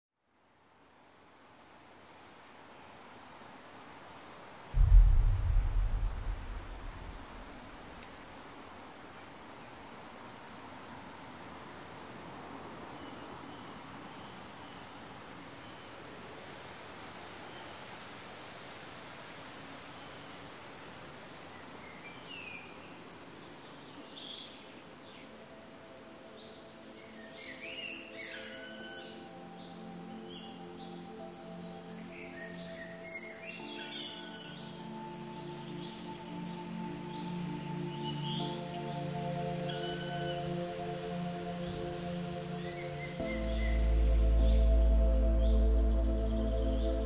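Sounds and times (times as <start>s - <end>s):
crickets chirping: 0.3s - 47.0s
deep boom: 4.8s - 8.3s.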